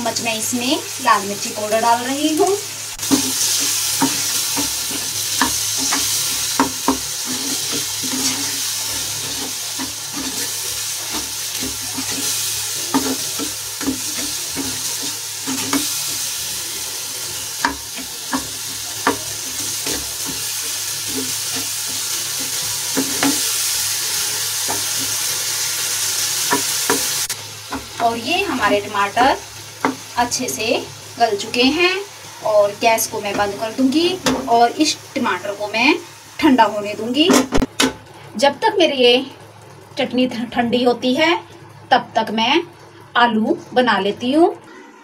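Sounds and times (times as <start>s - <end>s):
food sizzling in frying pan: 0.0s - 45.0s
wooden spatula scraping pan: 3.0s - 23.5s.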